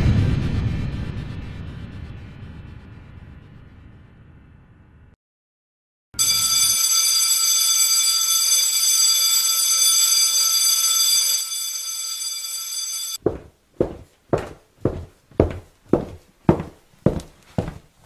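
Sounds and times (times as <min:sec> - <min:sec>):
electric bell ringing: 0:06.2 - 0:13.2
footsteps on hard floor: 0:13.2 - 0:18.0.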